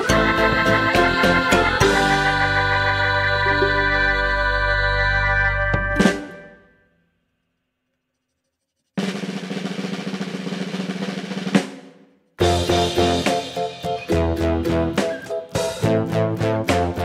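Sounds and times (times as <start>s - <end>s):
background music tune: 0.0s - 6.8s, 12.4s - 17.0s.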